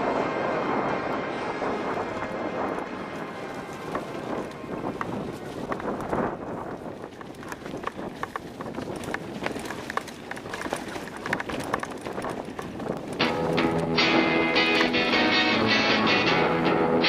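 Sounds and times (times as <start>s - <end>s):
bike tyre rumble on dirt trail: 0.0s - 17.0s
bike clicks knocks and rattles: 4.8s - 13.6s.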